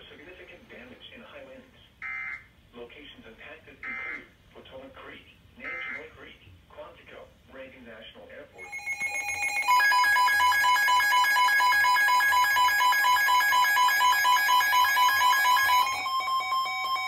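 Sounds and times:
weather alert radios beeping: 0:03.8 - 0:04.3, 0:05.6 - 0:06.1, 0:08.6 - 0:17.0.

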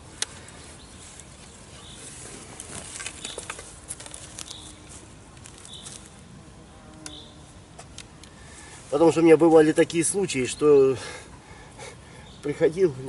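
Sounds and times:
net frame clicks and rustling: 0:02.2 - 0:06.2.

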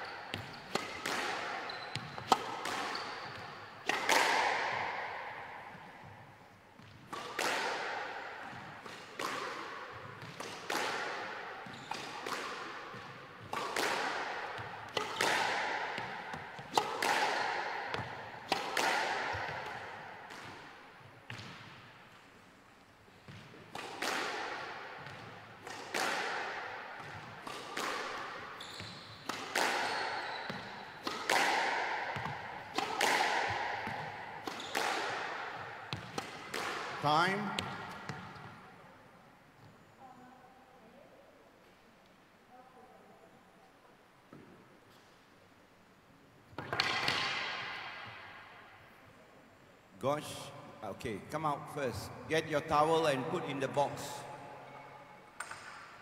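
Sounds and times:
squash ball cracks echoing: 0:00.0 - 0:22.2, 0:23.2 - 0:28.6, 0:29.2 - 0:38.8, 0:46.6 - 0:48.8, 0:51.8 - 0:56.0.

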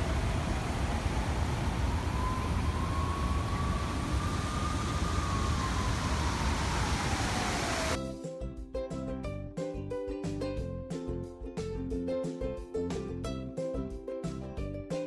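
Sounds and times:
wind on microphone: 0:00.0 - 0:08.0
music: 0:08.0 - 0:15.0.

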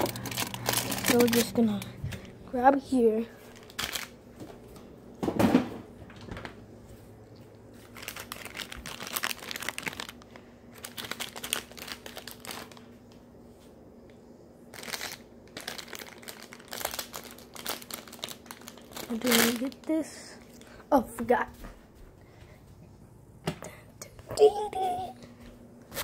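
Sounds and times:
plastic packaging crinkling: 0:00.0 - 0:02.4, 0:03.4 - 0:04.5, 0:07.7 - 0:13.0, 0:14.7 - 0:20.8.

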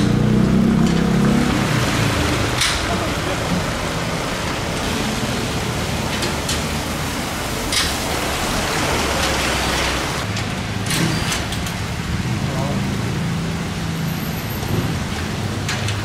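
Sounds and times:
car passing on wet road: 0:00.0 - 0:10.3
rain falling on wet street: 0:00.0 - 0:16.0.

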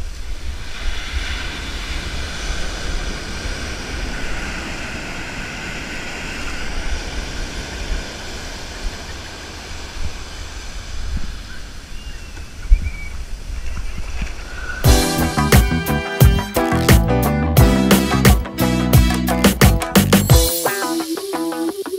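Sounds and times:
ocean surf washing up beach: 0:00.0 - 0:12.0
wind rumbling on microphone: 0:00.0 - 0:14.9.

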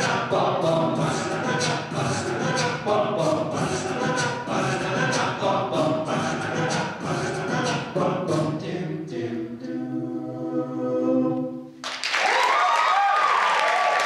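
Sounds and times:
male a cappella group singing: 0:00.0 - 0:11.7
audience applause and cheering: 0:11.8 - 0:14.0.

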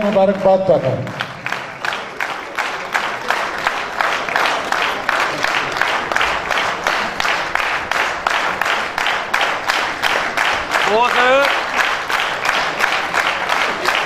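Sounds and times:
crowd clapping in rhythm: 0:00.0 - 0:14.0.

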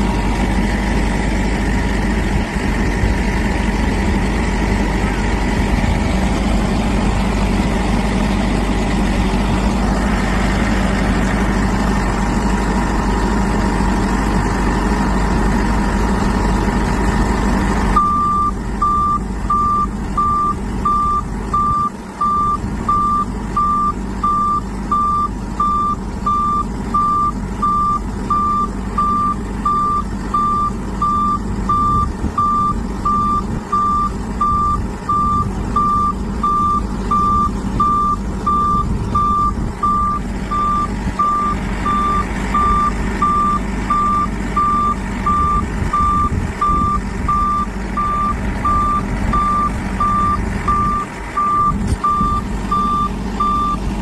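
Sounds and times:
heavy truck engine running: 0:00.0 - 0:54.0
reversing alarm beeping: 0:18.0 - 0:53.9.

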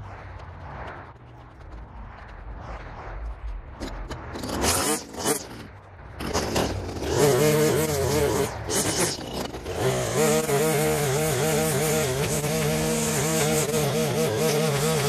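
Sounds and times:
string trimmer engine running: 0:06.9 - 0:15.0.

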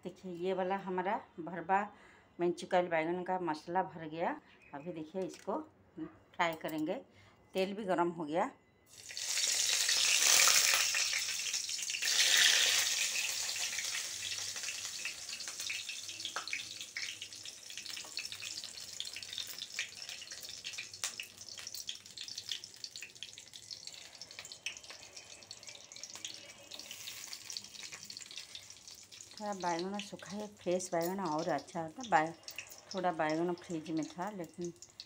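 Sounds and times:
oil crackles: 0:08.9 - 0:35.0
oil sizzling in a wok: 0:08.9 - 0:35.0.

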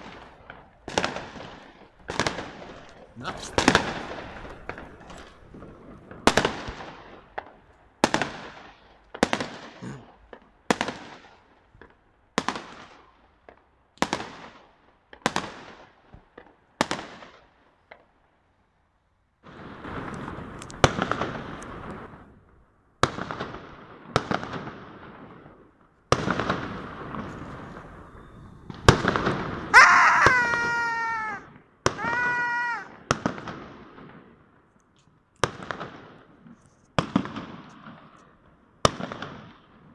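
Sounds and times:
firework crackling: 0:00.0 - 0:13.2, 0:19.5 - 0:22.4, 0:23.0 - 0:34.4
fireworks exploding: 0:00.0 - 0:18.1, 0:19.4 - 0:22.3, 0:23.0 - 0:34.6, 0:35.4 - 0:39.9
drawn-out falling tones: 0:29.7 - 0:31.4.

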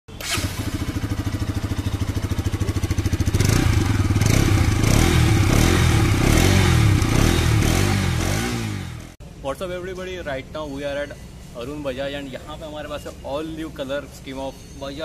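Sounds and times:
motorcycle engine revving: 0:00.1 - 0:09.2.

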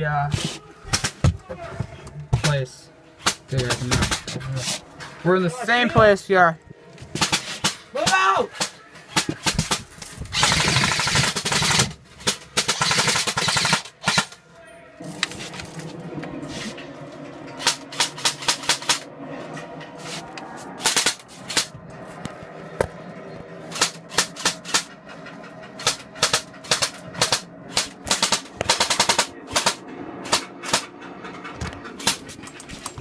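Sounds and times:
airsoft guns firing: 0:08.6 - 0:14.3, 0:25.8 - 0:30.8
steady low hum: 0:08.6 - 0:33.0.

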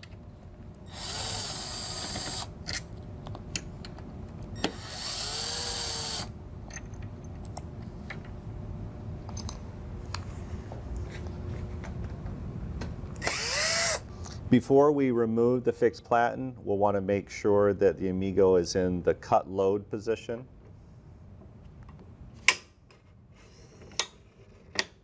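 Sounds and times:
cordless drill whirring: 0:00.9 - 0:02.5, 0:04.6 - 0:06.3, 0:13.2 - 0:14.1.

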